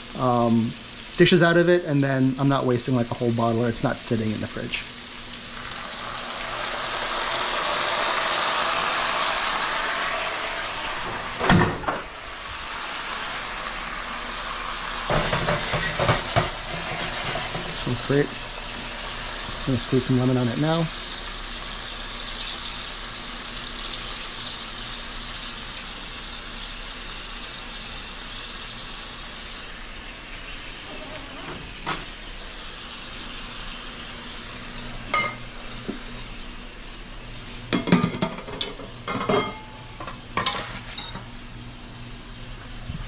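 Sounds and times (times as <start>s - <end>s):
shrimp sizzling in pan: 0.0s - 37.6s
kitchen utensils clinking: 15.1s - 18.2s, 37.8s - 41.3s.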